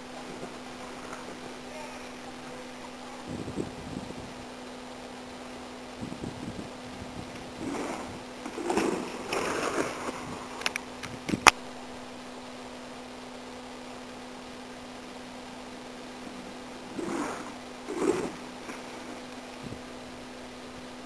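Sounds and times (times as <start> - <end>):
steady low hum: 0.0 - 21.0
bike tyres on dirt: 6.0 - 11.5, 15.8 - 20.1.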